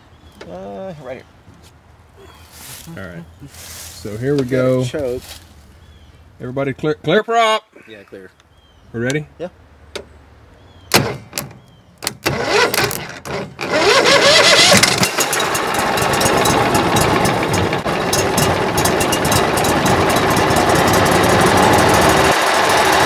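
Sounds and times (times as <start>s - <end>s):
engine starter cranking: 10.9s - 23.0s
boat engine running: 12.3s - 23.0s.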